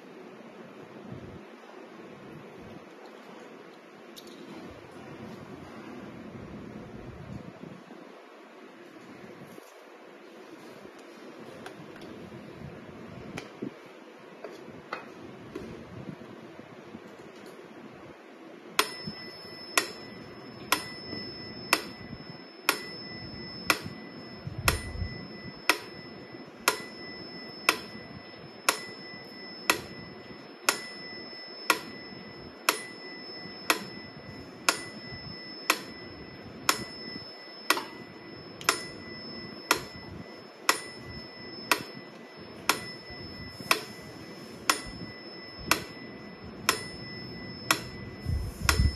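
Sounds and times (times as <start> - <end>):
metronome ticking: 18.8 - 34.0, 34.6 - 42.0, 44.7 - 48.9.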